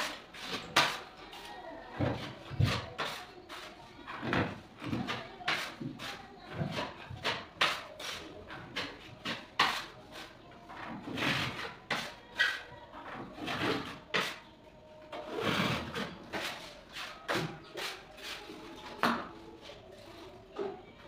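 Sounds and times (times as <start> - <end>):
hand tool scraping putty: 15.2 - 18.6.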